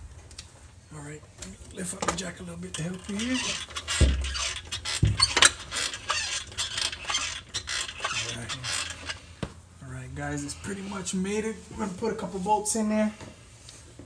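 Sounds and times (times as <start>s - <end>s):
metal clunks and scraping: 2.0s - 9.3s
heavy knocks: 3.9s - 5.6s.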